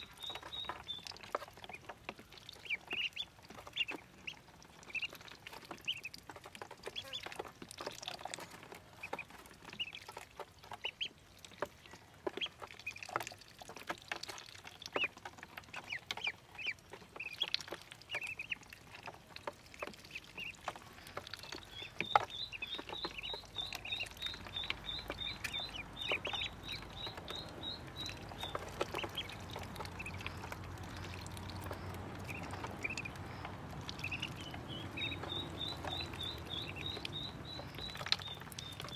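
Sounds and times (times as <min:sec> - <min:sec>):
ducklings peeping: 0:00.0 - 0:38.9.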